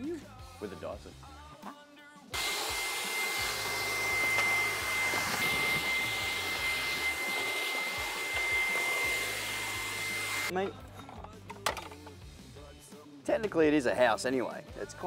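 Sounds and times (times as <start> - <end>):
cordless vacuum running: 2.4 - 10.5.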